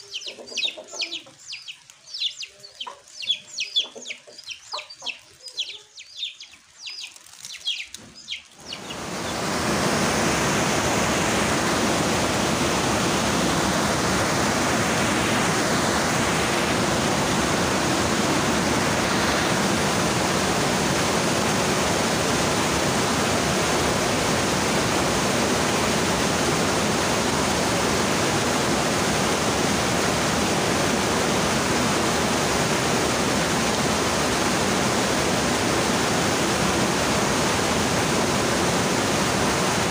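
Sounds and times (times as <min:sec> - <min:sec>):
chicken clucking: 0:00.0 - 0:09.4
stream rushing over boulders: 0:08.4 - 0:39.9.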